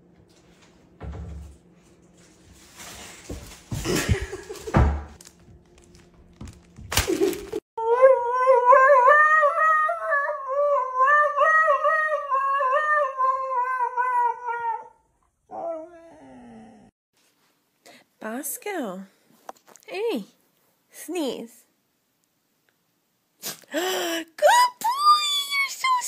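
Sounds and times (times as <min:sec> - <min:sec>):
knocks and thumps: 0:03.3 - 0:07.3
husky howling: 0:07.8 - 0:16.9.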